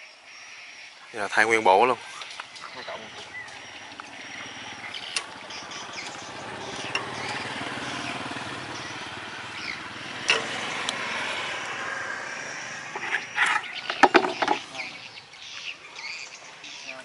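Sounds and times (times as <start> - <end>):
small engine running: 2.8 - 14.8.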